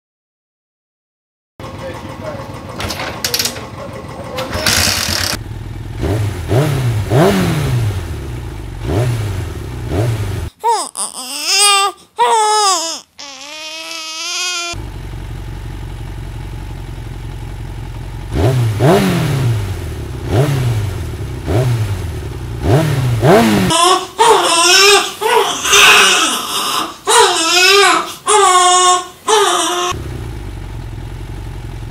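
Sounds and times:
engine idle hum: 1.6 - 10.5, 14.8 - 23.9, 29.9 - 31.9
engine revving: 3.7 - 10.5, 14.7 - 23.9, 29.8 - 31.9
baby wailing: 10.6 - 14.8, 23.7 - 30.0.

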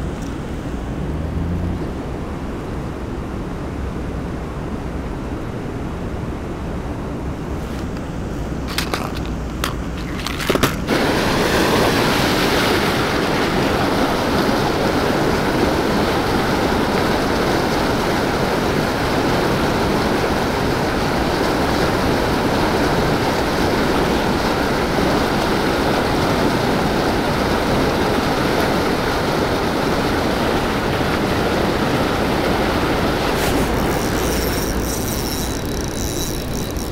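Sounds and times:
white water rushing: 0.0 - 36.9
sharp clicks and knocks: 7.8 - 10.9.

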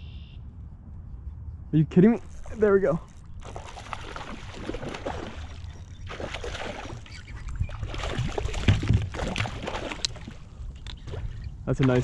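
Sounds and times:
fish thrashing and splashing: 2.2 - 12.0
water slapping: 2.3 - 12.0.

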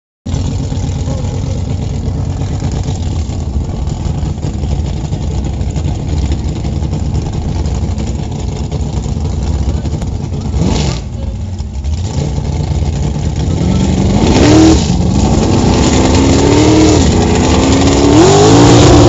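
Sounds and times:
vehicle engine at low revs: 0.3 - 19.0.

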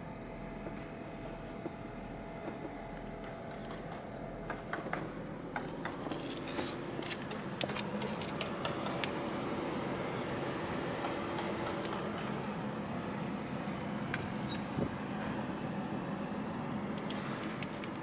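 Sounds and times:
steady low hum: 0.0 - 18.0
small sharp clicks and rustles: 16.7 - 18.0.

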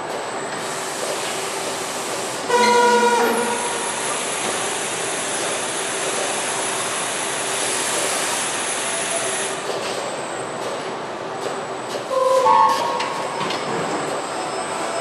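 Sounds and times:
assembly line hiss and hum: 0.6 - 9.7.

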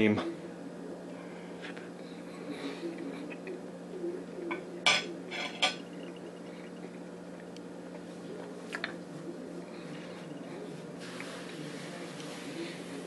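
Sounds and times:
cutlery clinking against a dish: 4.5 - 5.9.

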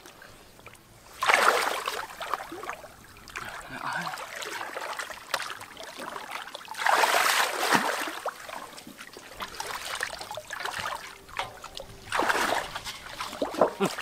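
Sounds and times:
shallow water splashing and trickling: 0.0 - 14.0
loud water splash: 1.2 - 2.4, 6.7 - 8.3, 9.6 - 14.0.

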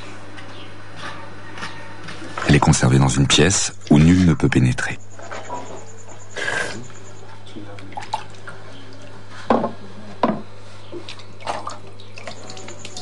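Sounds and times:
water sloshing in a bowl: 6.8 - 9.9, 10.8 - 13.0.

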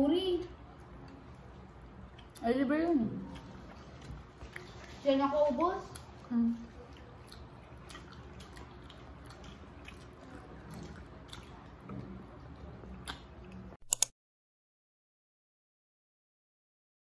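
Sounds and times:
people chewing and biting food: 0.6 - 2.4, 3.1 - 14.1
small clicks: 13.8 - 14.1.

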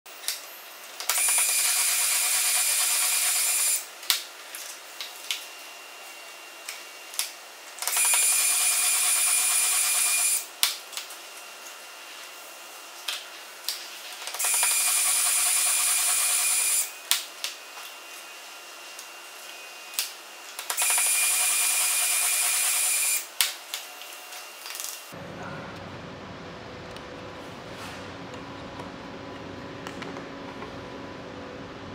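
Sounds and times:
drill spinning cutter whine: 1.1 - 3.9, 7.9 - 10.5, 14.4 - 20.0, 20.6 - 23.3.

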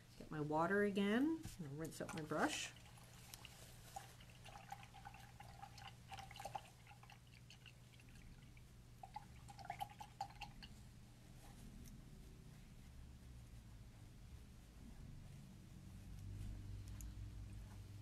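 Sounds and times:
paintbrush splashing in water cup: 1.8 - 10.8.

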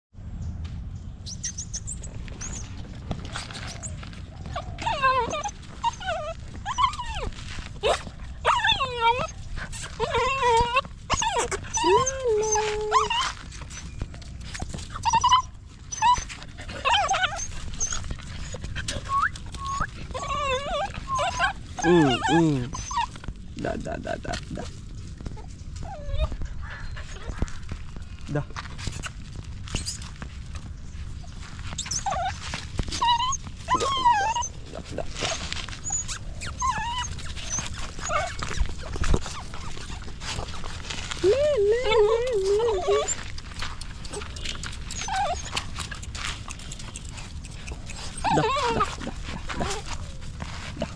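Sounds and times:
puppy whimpering and crying: 1.5 - 28.0, 31.2 - 50.9.

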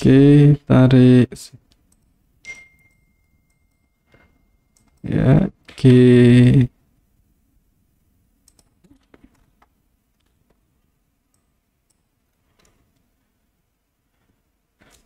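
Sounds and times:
computer mouse and keyboard clicks: 8.4 - 10.6, 11.3 - 13.1.

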